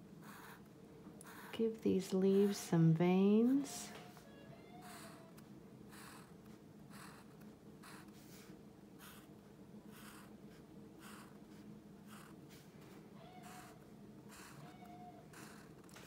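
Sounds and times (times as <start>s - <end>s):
marker scratching on paper: 5.9s - 9.3s, 9.9s - 12.7s.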